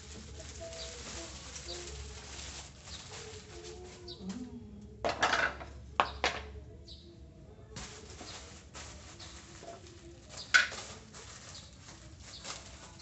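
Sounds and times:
plastic packaging crinkling: 0.0s - 4.5s, 7.8s - 13.0s
small birds chirping: 0.5s - 4.4s, 6.8s - 7.2s, 9.1s - 10.6s, 11.3s - 13.0s.

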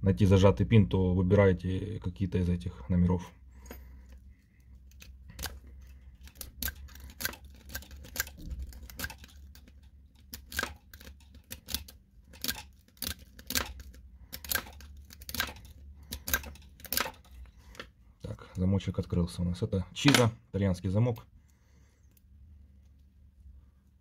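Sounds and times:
lock pick clicking: 6.2s - 17.3s.

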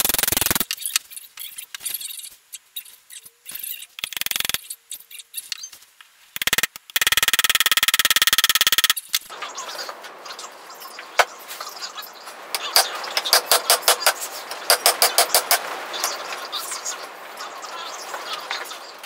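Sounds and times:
rapid ratchet clicking: 0.0s - 1.0s, 3.7s - 4.7s, 6.4s - 9.2s.

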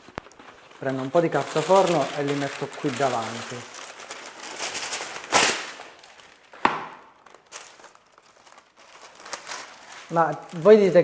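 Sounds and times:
baking paper rustling: 0.0s - 11.0s
paper crinkling: 0.0s - 11.0s
paper tearing snap: 5.2s - 5.8s.

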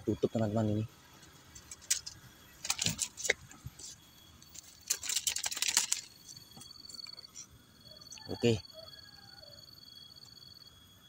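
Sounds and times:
dry leaf crackling: 1.4s - 7.4s.

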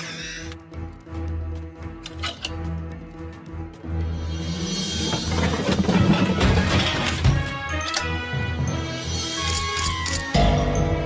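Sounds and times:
film score music: 0.0s - 11.0s.

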